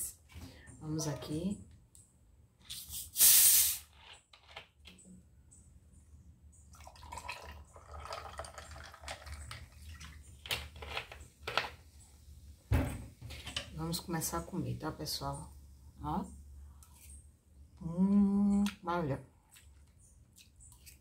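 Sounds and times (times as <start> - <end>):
soda pouring and fizzing over ice: 6.8 - 10.4.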